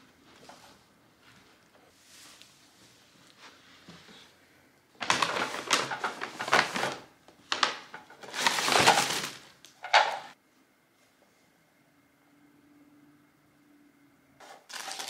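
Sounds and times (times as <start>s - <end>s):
paper bag rustling and crinkling: 5.0s - 10.4s, 14.4s - 15.0s.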